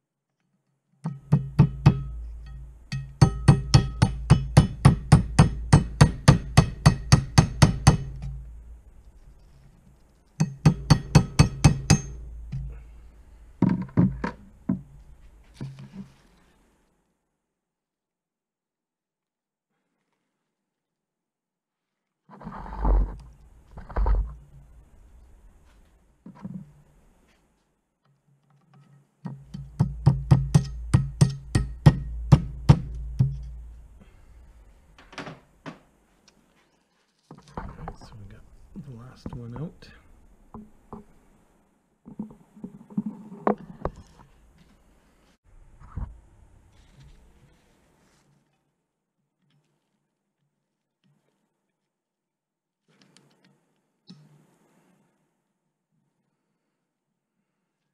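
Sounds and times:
hammer tapping metal punch: 1.0 - 8.4, 10.4 - 12.7, 29.3 - 33.6.

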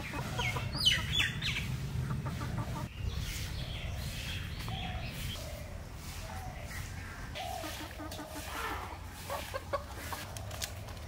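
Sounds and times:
chicken clucking: 0.0 - 5.6, 6.8 - 10.8
chicken squawking: 7.4 - 10.2.

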